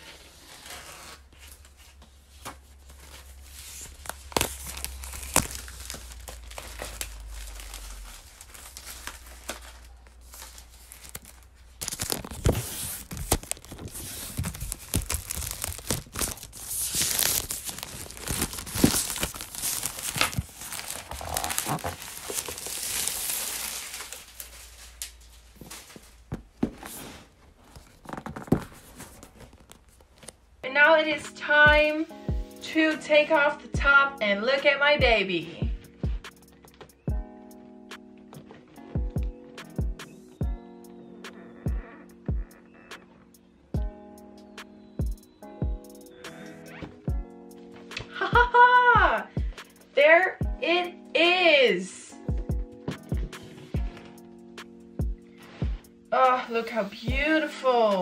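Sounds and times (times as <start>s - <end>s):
plastic wrap crinkling: 0.0s - 30.5s.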